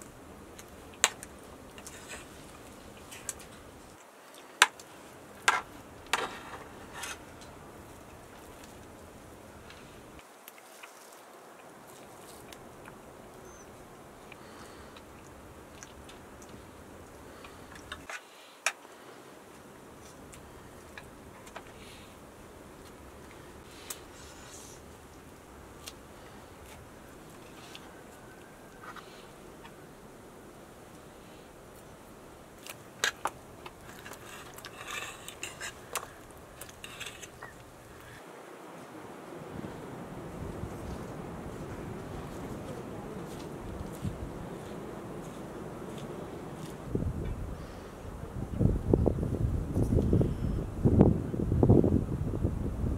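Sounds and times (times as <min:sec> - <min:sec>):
quiet chewing: 0:00.5 - 0:09.0, 0:09.6 - 0:18.1, 0:25.8 - 0:29.9, 0:30.9 - 0:38.2.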